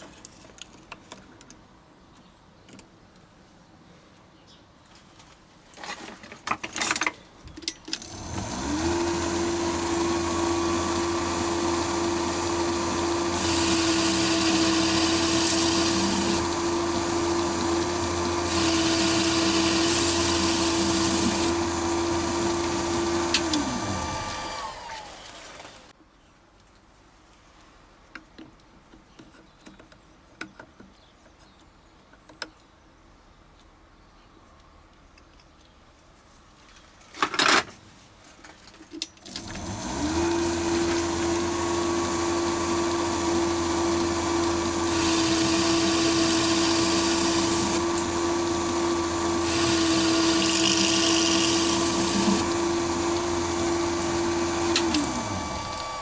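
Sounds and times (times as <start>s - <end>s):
lathe motor whine: 8.0s - 25.5s, 39.4s - 56.0s
cutting tool hiss: 42.0s - 56.0s.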